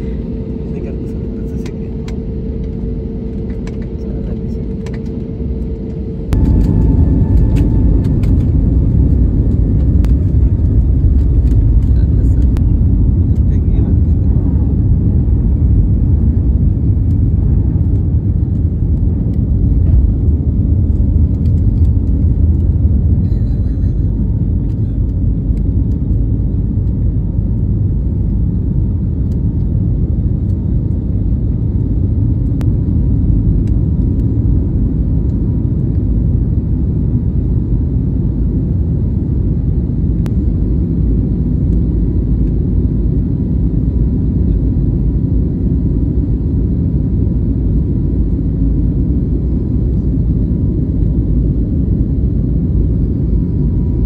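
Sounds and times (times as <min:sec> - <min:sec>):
jet engines and rushing air: 0:00.0 - 0:54.0.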